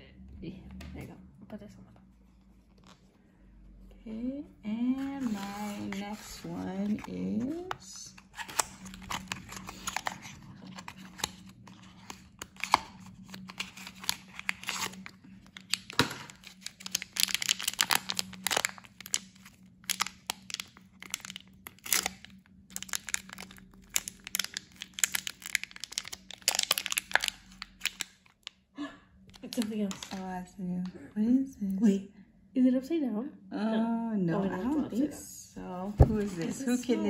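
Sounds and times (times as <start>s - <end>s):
foil pouch crinkling and tearing: 5.0s - 28.5s, 29.3s - 30.2s.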